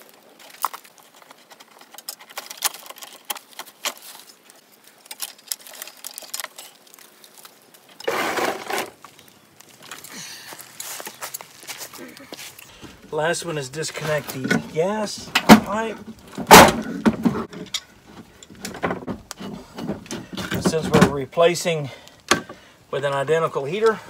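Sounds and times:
wiring and metal fittings rattling: 0.0 - 11.8
scraping rustle: 0.0 - 21.6.

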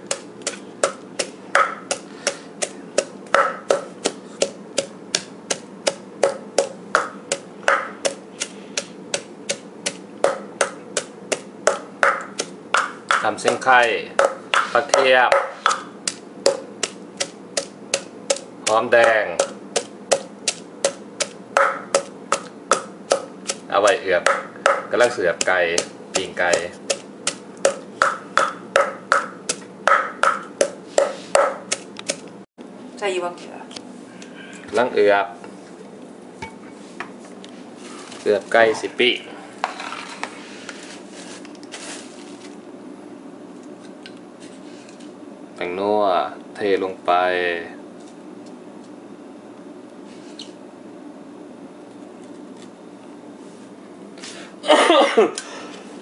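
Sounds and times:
wooden pestle pounding in mortar: 0.0 - 32.2.

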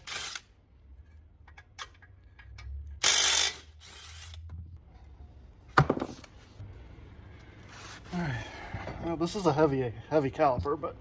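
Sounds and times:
ratchet wrench clicking: 0.0 - 0.5, 1.8 - 4.5.

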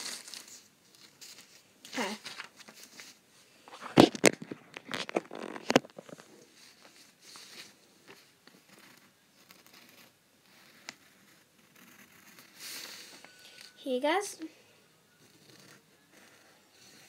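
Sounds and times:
paper rustling: 0.0 - 8.9.

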